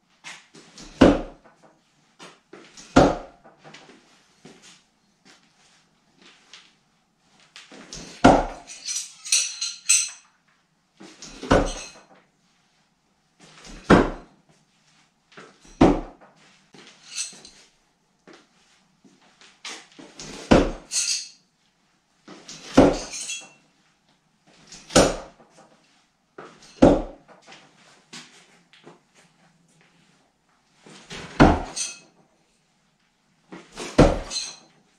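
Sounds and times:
metallic clatter and ring: 0:08.6 - 0:10.3, 0:11.2 - 0:12.1, 0:17.0 - 0:17.6, 0:20.9 - 0:21.4, 0:23.0 - 0:23.6, 0:31.7 - 0:32.1, 0:34.2 - 0:34.7.

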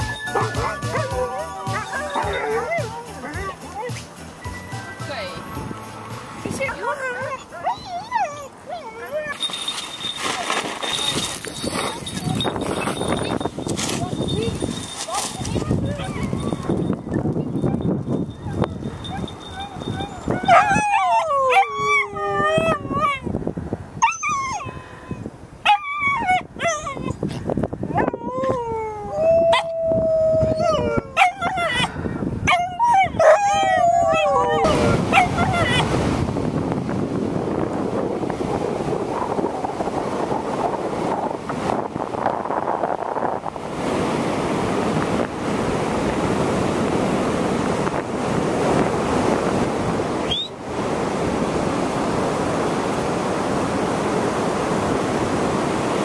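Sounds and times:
dogs howling: 0:00.0 - 0:04.0, 0:06.8 - 0:09.4, 0:15.5 - 0:16.8, 0:18.4 - 0:23.3, 0:27.9 - 0:35.9
dogs yipping: 0:00.0 - 0:04.1, 0:06.6 - 0:14.2, 0:15.1 - 0:23.2, 0:25.6 - 0:27.2, 0:27.9 - 0:29.8, 0:30.6 - 0:35.9
sea surf on sandy beach: 0:00.0 - 0:56.0
wind buffeting microphone: 0:05.1 - 0:56.0.

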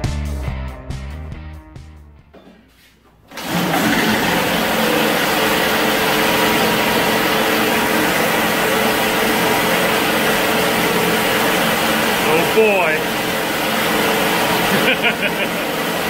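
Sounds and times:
music: 0:00.0 - 0:02.8
tracked vehicle engine running: 0:03.4 - 0:16.0.

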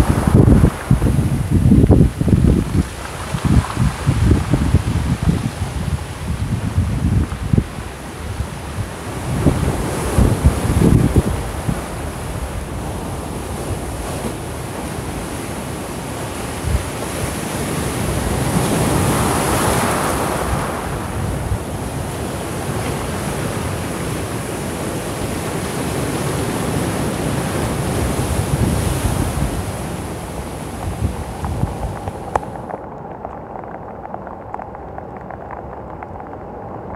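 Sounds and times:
heavy surf breaking on rocks: 0:00.0 - 0:36.9
wind buffeting microphone: 0:00.0 - 0:36.9.

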